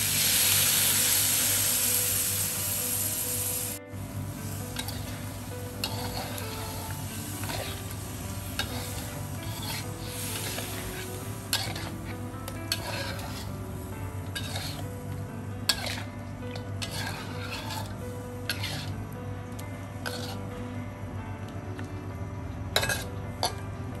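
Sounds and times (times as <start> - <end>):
light sizzle of frying: 0.0 - 20.5, 22.7 - 24.0
spatula scraping metal wok: 4.5 - 15.0, 15.6 - 19.0, 20.0 - 20.5, 22.8 - 23.6
spatula clinking against wok: 11.5 - 11.9, 22.8 - 23.6.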